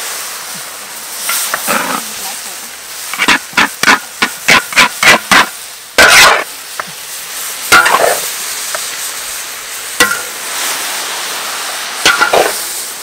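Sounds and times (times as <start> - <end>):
food sizzling: 0.0 - 13.0
metal spatula scraping a wok: 1.2 - 2.2, 3.1 - 6.5, 7.7 - 8.4, 12.0 - 12.8.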